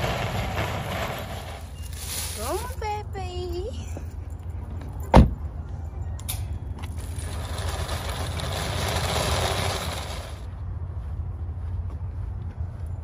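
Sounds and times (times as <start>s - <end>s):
shopping cart rattling over asphalt: 0.0s - 3.4s, 6.9s - 10.5s
car door thump: 5.1s - 5.4s.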